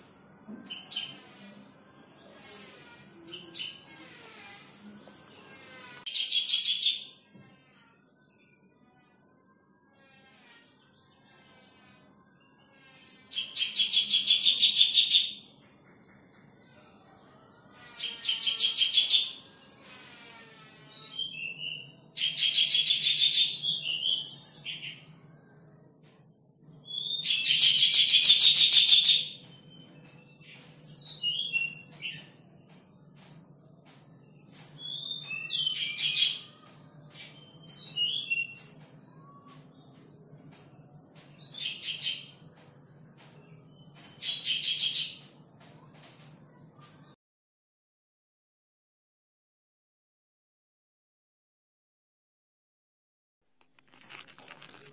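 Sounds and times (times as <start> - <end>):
nestlings chirping: 53.7 - 54.9.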